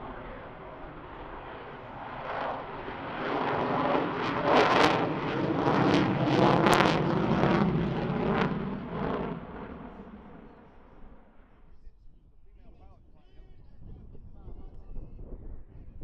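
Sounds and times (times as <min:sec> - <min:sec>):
jet engines roaring overhead: 0:00.0 - 0:11.8.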